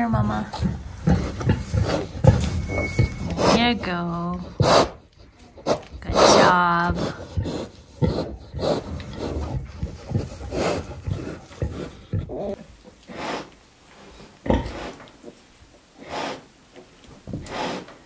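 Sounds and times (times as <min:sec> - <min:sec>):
pig grunting: 0:00.2 - 0:13.5, 0:14.4 - 0:15.0.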